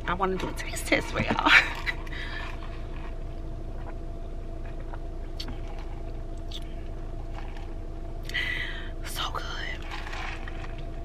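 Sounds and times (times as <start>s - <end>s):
car cabin hum: 0.0s - 11.0s
slurping through a straw: 9.4s - 11.0s.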